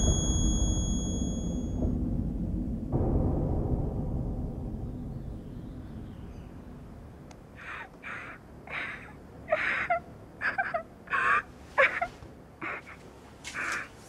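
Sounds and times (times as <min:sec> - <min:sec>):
low rumble: 0:00.0 - 0:07.6.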